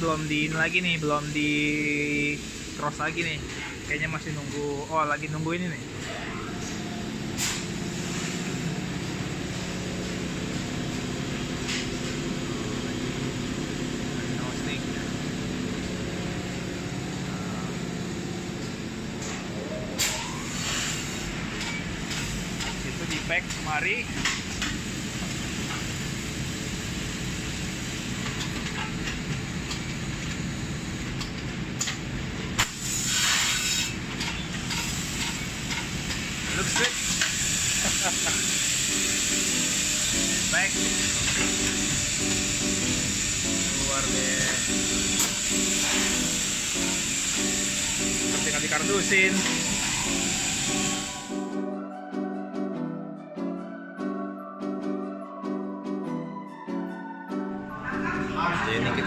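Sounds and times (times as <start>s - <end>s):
coffee roaster drum droning: 0.0s - 51.4s
machine hum: 1.3s - 20.6s
hiss of air: 7.4s - 8.7s, 20.0s - 21.4s, 32.6s - 34.0s, 34.6s - 51.4s
brief hiss: 32.6s - 34.0s.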